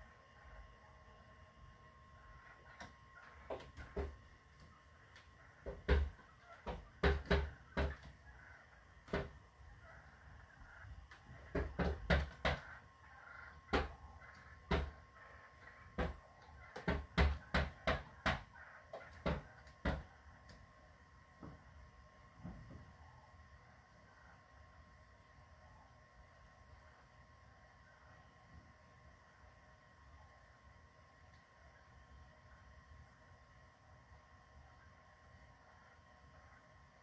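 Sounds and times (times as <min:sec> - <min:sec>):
turkeys pecking on glass: 0:02.6 - 0:04.2, 0:05.2 - 0:20.1.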